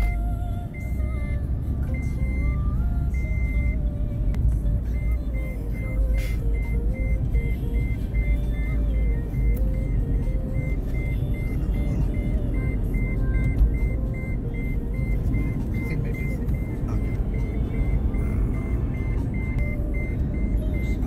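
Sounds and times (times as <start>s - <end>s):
road and engine rumble: 0.0s - 21.0s
high beeping: 5.0s - 21.0s.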